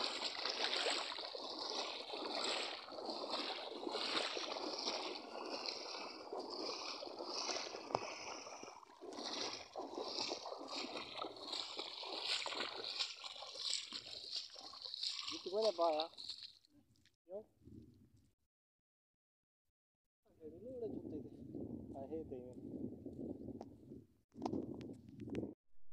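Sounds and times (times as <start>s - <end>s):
feet splashing in shallow water: 0.0s - 16.7s.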